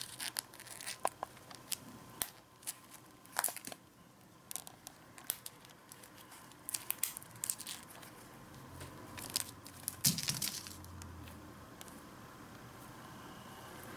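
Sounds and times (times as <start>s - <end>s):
crinkly aluminium sheet crackle: 0.0s - 3.8s, 4.5s - 8.2s, 9.2s - 10.9s.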